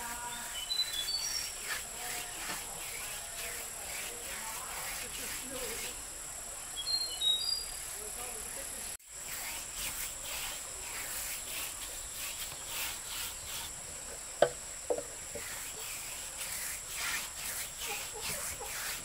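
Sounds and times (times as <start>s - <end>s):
insects chirring: 0.0s - 19.0s.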